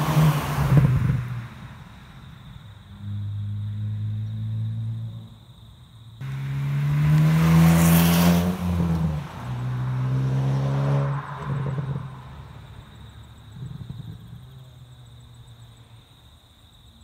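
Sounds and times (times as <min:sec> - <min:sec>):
car engine accelerating past: 0:06.2 - 0:12.8.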